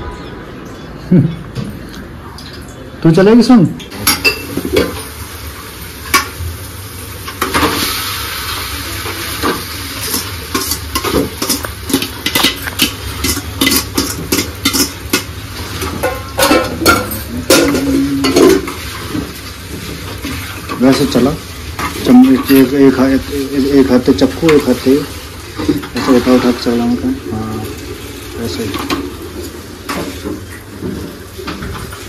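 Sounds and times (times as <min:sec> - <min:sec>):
utensils clinking against pan: 0:03.8 - 0:05.2, 0:09.1 - 0:26.9
noodles sizzling in a hot pan: 0:04.4 - 0:32.0.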